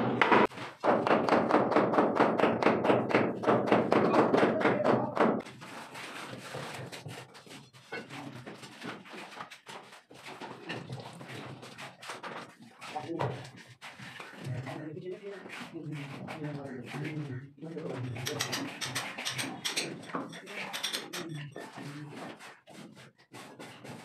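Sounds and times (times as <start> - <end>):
hammer blows on wooden door frame: 0.2 - 5.4.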